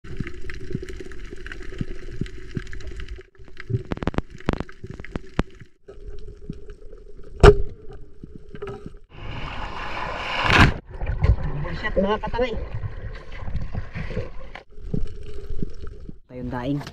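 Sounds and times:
underwater low hum: 0.0 - 11.6, 12.6 - 16.3
clicks and crackles: 0.1 - 9.0.

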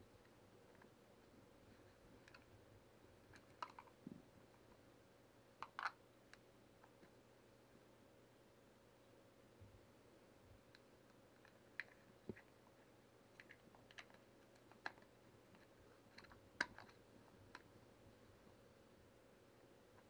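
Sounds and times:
plastic parts clicking and tapping: 1.8 - 2.5, 3.2 - 4.7, 5.6 - 7.1, 13.3 - 17.7.

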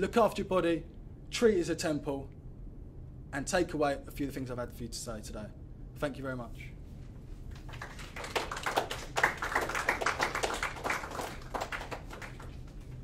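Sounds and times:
people clapping: 7.5 - 13.0.

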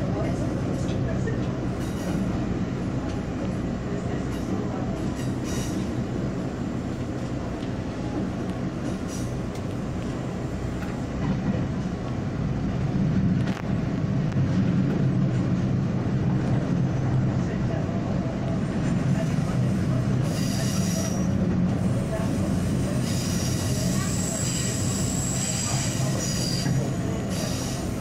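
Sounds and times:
train wheels rumbling on rail: 0.0 - 28.0.

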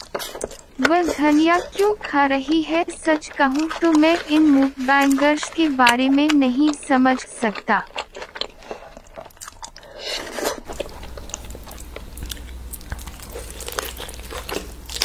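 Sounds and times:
low steady hum: 0.0 - 15.0
person chewing: 0.0 - 15.0.

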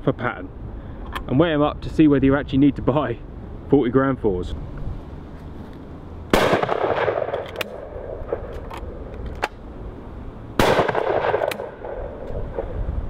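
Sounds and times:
shotgun shots with ringing echo: 6.3 - 8.5, 10.6 - 12.8.

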